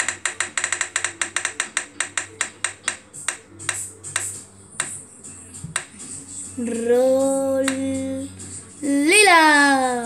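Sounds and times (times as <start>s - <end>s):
roulette wheel app ticking: 0.0s - 5.0s.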